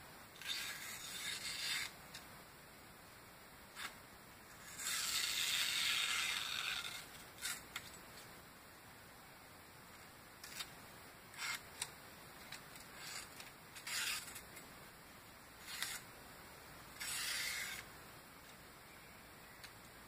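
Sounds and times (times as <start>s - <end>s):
knife slicing paper: 12.9s - 14.4s.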